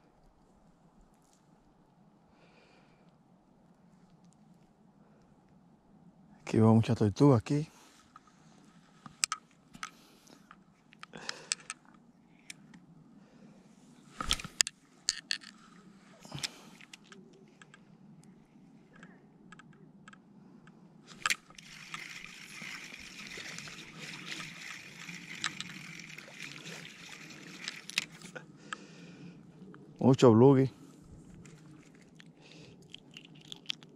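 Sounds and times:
spinning reel whirring: 21.2 - 28.4.

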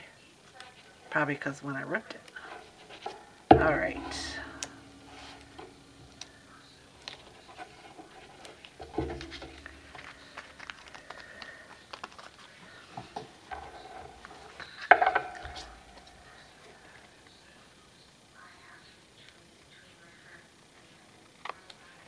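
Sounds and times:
knock on tabletop: 3.5 - 6.2, 8.8 - 10.1, 14.9 - 16.2
paper rustling: 7.0 - 16.4.

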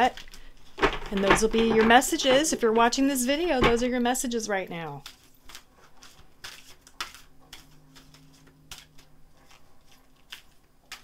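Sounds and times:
cards being shuffled: 5.0 - 11.0.

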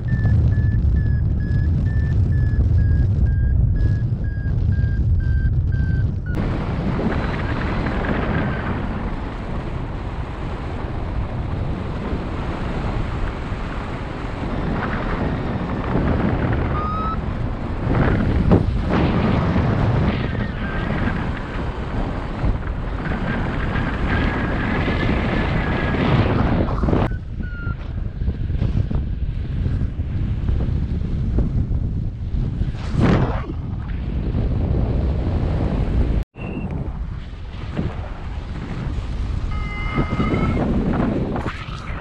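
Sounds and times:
wind buffeting microphone: 0.0 - 42.0
faint thin whistle-like tone: 39.5 - 40.6.

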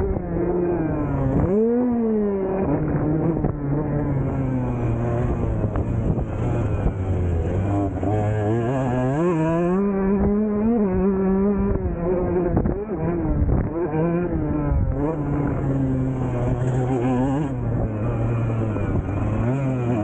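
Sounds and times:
two-stroke motorcycle engine revving: 0.0 - 20.0.

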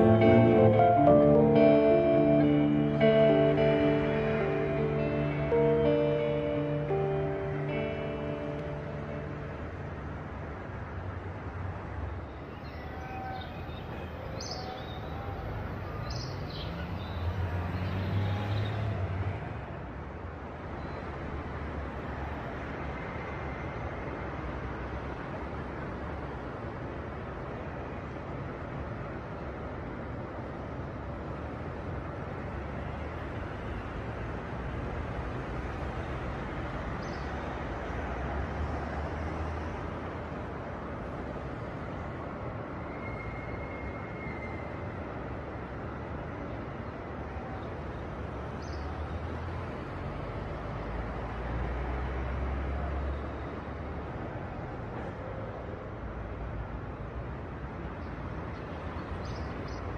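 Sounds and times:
distant traffic rumble: 0.0 - 59.9
faint high chirp: 42.8 - 44.8.

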